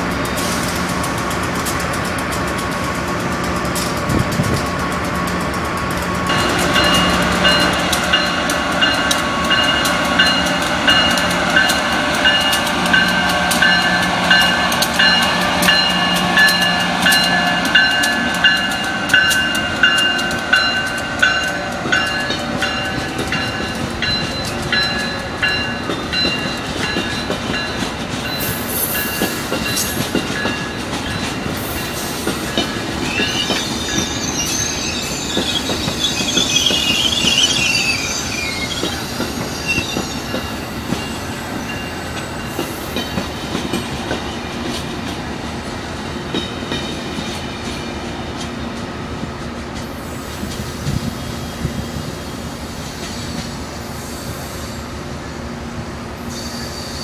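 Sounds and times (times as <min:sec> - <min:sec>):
train wheels clicking over rail joints: 0:00.0 - 0:54.4
electric locomotive humming: 0:00.0 - 0:57.0
high-pitched wheel squeal: 0:33.0 - 0:40.5.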